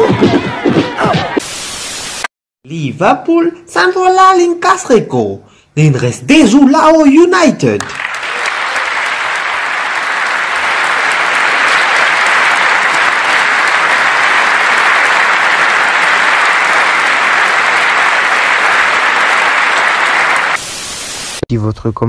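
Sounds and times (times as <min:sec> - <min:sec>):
audience applauding: 0:07.8 - 0:20.6.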